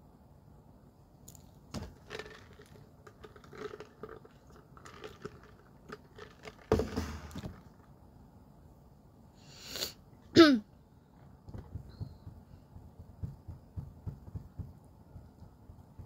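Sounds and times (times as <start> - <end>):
plastic cup clicks and rustles: 1.3 - 7.9
cup knock: 11.5 - 16.0.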